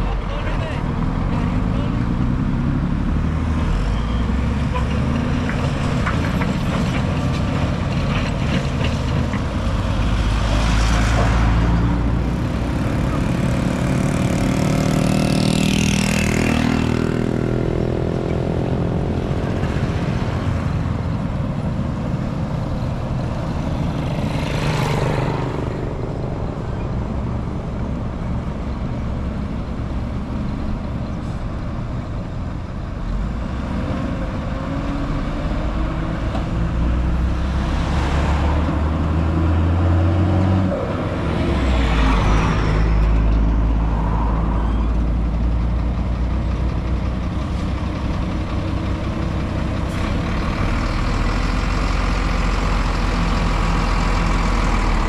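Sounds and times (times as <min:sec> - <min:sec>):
diesel machinery engine rumble: 0:00.0 - 0:55.0.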